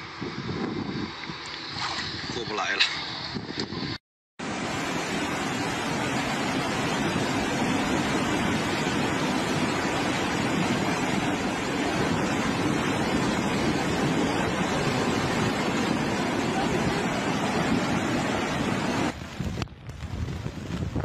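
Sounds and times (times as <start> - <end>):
rushing water: 4.4 - 19.5.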